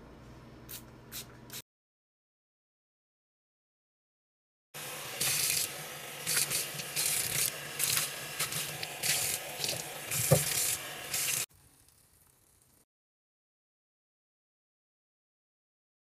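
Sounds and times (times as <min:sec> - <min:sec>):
brush scrubbing a sink: 0:04.8 - 0:11.5
running tap water: 0:04.8 - 0:11.5.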